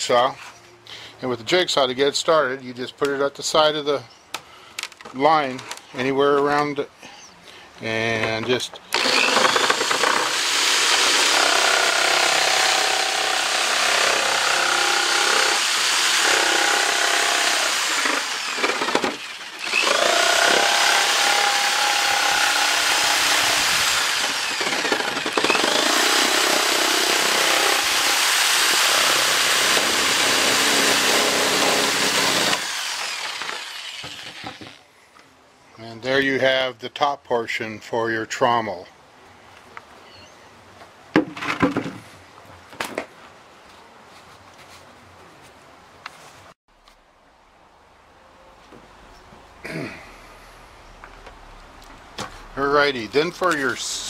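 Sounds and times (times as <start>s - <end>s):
electric jigsaw cutting plastic: 8.9s - 34.8s.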